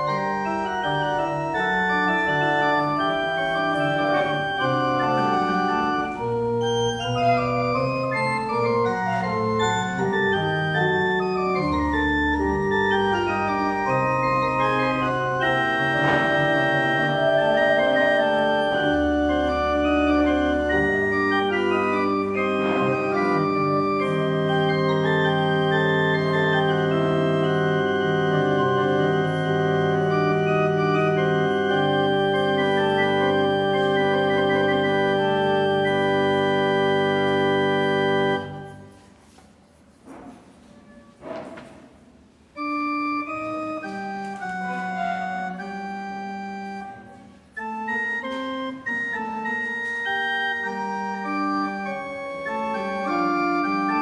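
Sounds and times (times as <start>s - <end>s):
pipe organ playing: 0.0s - 39.4s, 42.4s - 54.0s.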